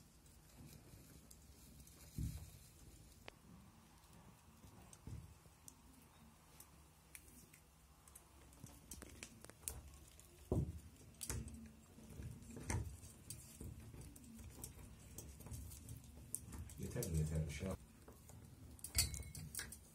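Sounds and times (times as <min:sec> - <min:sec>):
small clicks and taps: 0:04.5 - 0:17.3.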